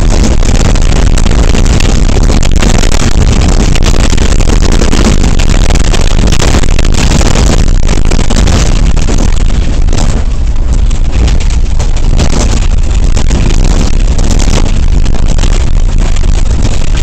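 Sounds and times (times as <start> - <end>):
bus engine low rumble: 0.0 - 17.0.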